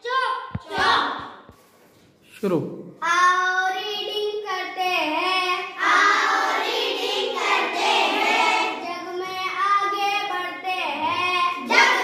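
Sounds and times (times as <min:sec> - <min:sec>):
child chanting: 0:03.0 - 0:12.0.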